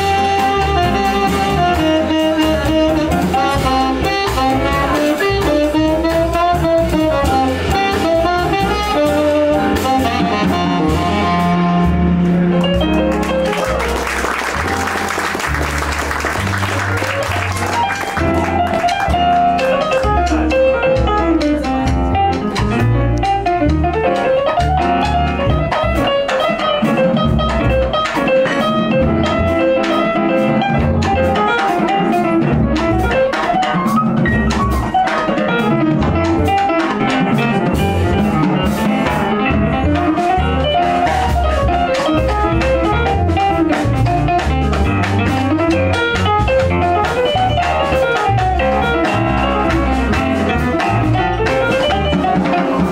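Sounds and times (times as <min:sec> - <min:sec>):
double bass: 0:00.0 - 0:52.9
drum kit: 0:00.0 - 0:52.9
jazz piano solo: 0:00.0 - 0:52.9.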